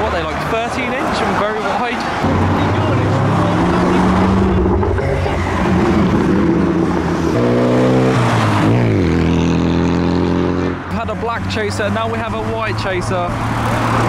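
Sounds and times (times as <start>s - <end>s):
car engine accelerating past: 2.2s - 10.8s.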